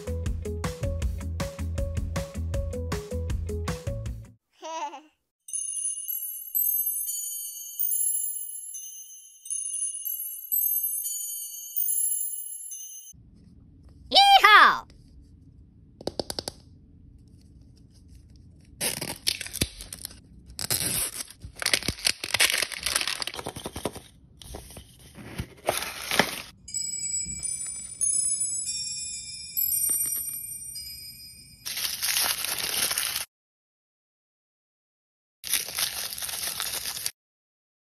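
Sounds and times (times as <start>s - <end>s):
paper tearing and crumpling: 18.6s - 26.5s, 31.7s - 33.3s, 35.4s - 37.2s.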